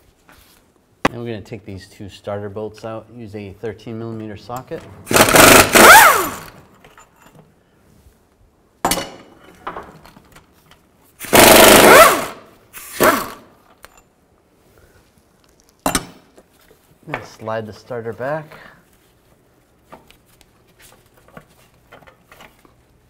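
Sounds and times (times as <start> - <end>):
impact wrench bursts: 5.0 - 6.6, 11.2 - 13.5.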